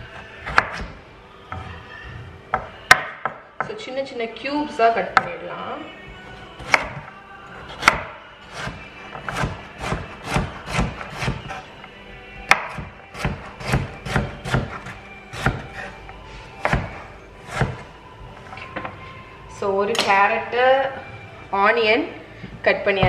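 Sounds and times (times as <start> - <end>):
knife chopping on wooden board: 2.6 - 3.4, 6.6 - 7.0, 7.7 - 11.6, 12.5 - 15.9, 16.6 - 17.8.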